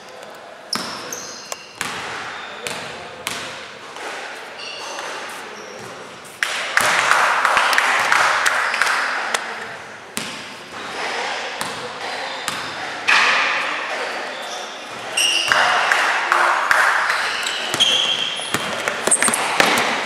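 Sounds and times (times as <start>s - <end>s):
basketball bouncing on hall floor: 0.7s - 4.2s, 5.8s - 11.0s, 11.6s - 13.4s, 14.9s - 20.0s.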